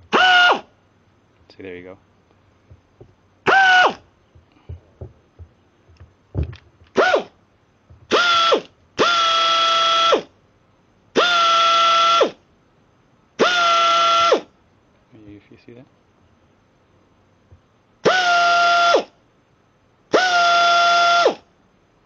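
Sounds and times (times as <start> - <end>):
compressed air whistling blasts: 0.0 - 0.8, 3.4 - 4.8, 6.9 - 7.4, 8.1 - 10.4, 11.1 - 12.4, 13.4 - 14.6, 18.0 - 19.2, 20.1 - 21.5.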